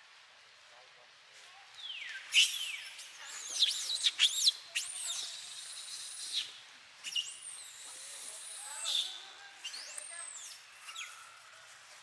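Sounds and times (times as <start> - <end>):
infant monkey squealing: 3.5 - 11.2.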